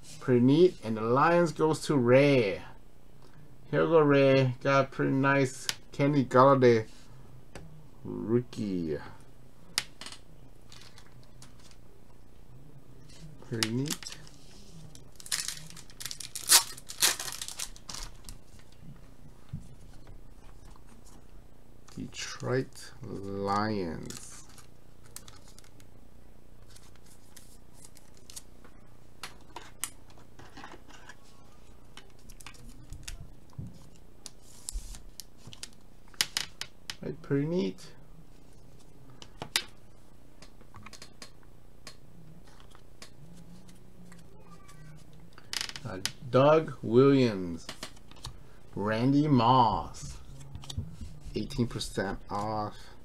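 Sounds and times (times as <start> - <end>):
low room hiss: 0.0 - 53.0
cards rustling and crinkling: 13.1 - 18.9, 21.9 - 25.9, 26.6 - 28.5.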